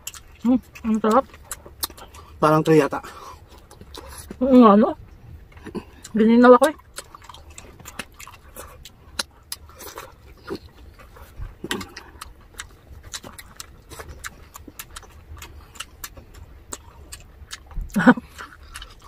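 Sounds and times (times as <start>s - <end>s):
chewing crispy food: 0.0s - 19.0s
faint low hum: 0.0s - 19.0s.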